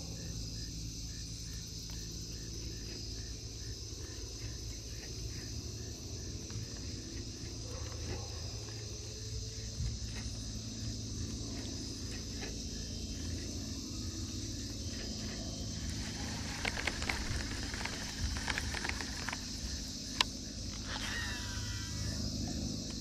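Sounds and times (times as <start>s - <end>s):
insects chirring: 0.0s - 23.0s.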